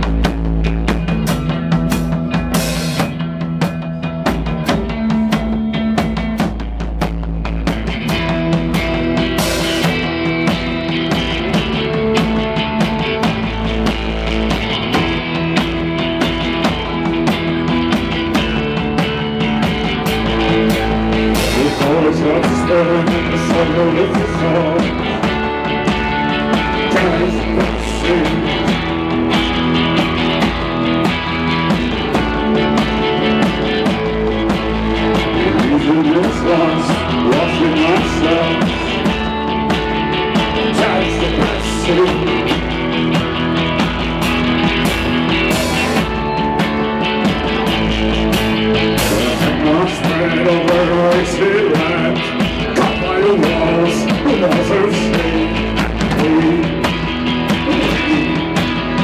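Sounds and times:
bass guitar: 0.0s - 59.0s
electric guitars: 0.0s - 59.0s
steady drum beat: 0.0s - 59.0s
man singing: 17.2s - 29.6s, 33.5s - 43.3s, 49.0s - 59.0s.

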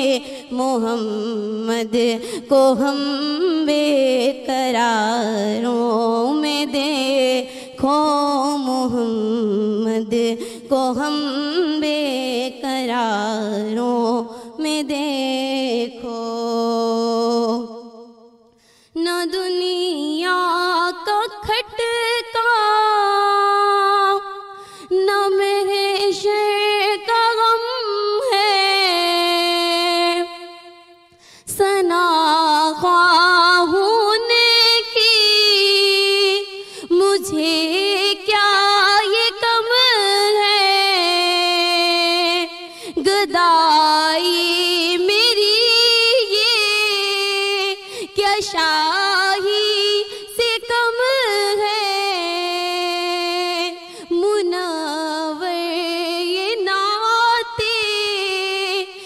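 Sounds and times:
woman singing unaccompanied: 0.0s - 18.2s, 19.0s - 59.0s.

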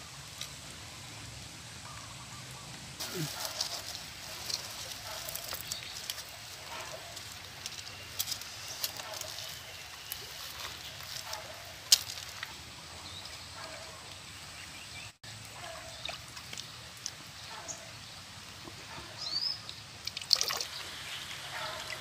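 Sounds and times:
outdoor background noise: 0.0s - 22.0s
hands handling plastic bags: 3.0s - 12.4s.

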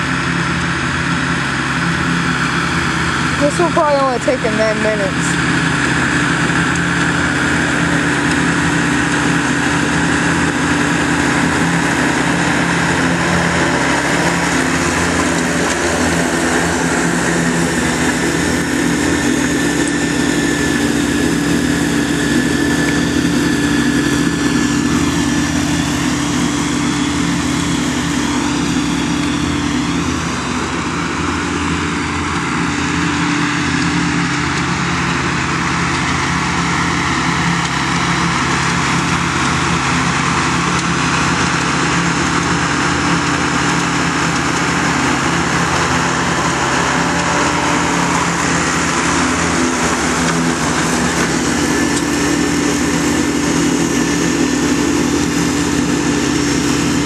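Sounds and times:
mower engine running: 0.0s - 57.0s.

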